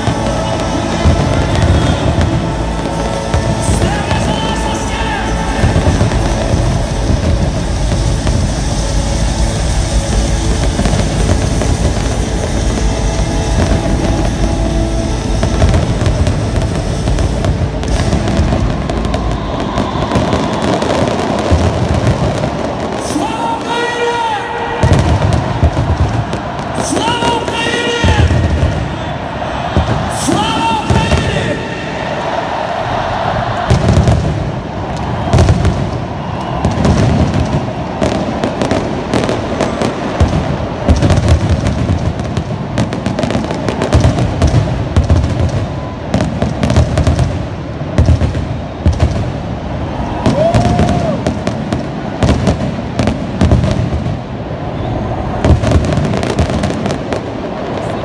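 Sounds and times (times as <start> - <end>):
low rumble of bursts: 0.0 - 22.8
fireworks crackling and popping: 0.0 - 58.0.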